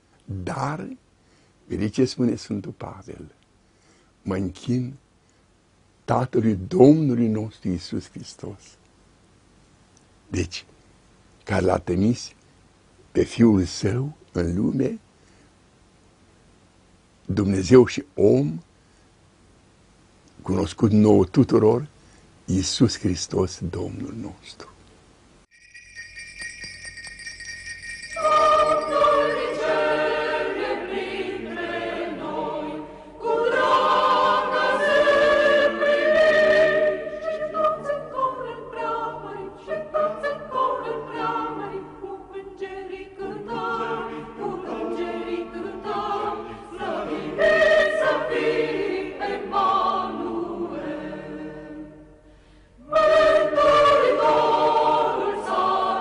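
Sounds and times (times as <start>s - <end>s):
choir singing a hymn: 27.2s - 56.0s.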